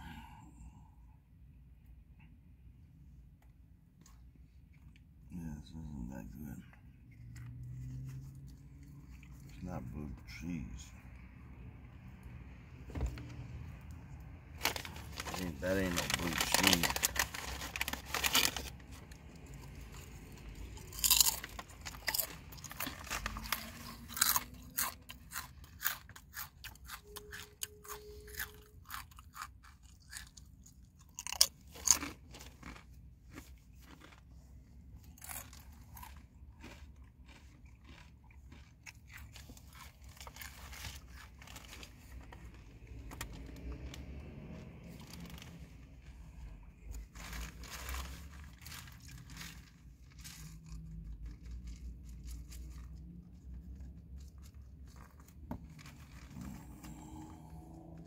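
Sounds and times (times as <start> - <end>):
crunching chips: 14.5 - 44.2, 44.9 - 58.0.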